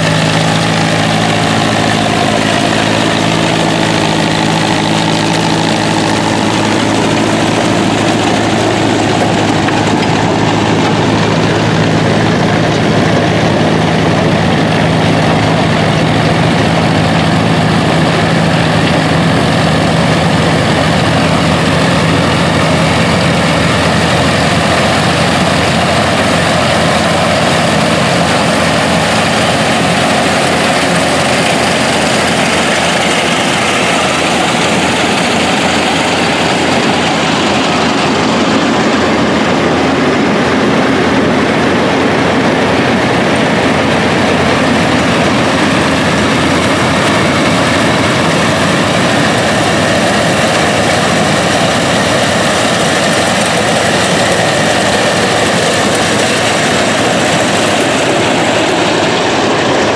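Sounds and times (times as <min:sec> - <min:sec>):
corn picker machinery noise: 0:00.0 - 0:59.9
tractor engines humming: 0:00.0 - 0:59.9.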